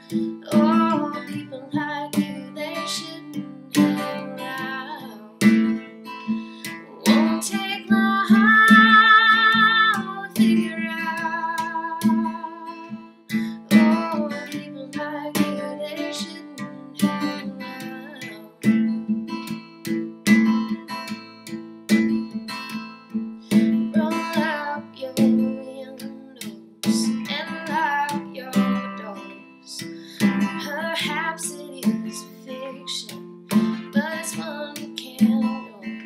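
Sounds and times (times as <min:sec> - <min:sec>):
person singing with vibrato: 0:00.0 - 0:18.6, 0:33.8 - 0:36.0
acoustic guitar strumming: 0:00.0 - 0:36.0.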